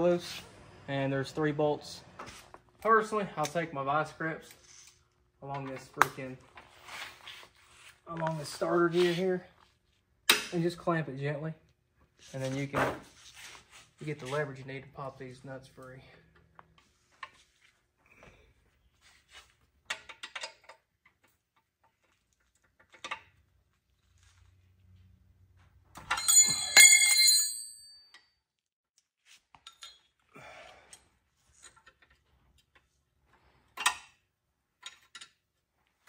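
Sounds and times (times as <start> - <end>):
ringing metallic clanking: 26.0 - 28.1.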